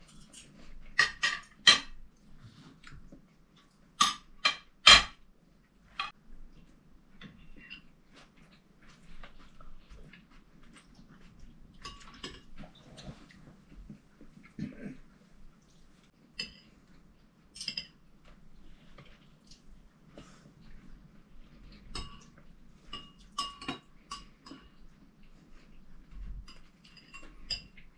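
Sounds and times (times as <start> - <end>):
cutlery clinking on china plates: 21.9 - 24.8, 26.5 - 27.9.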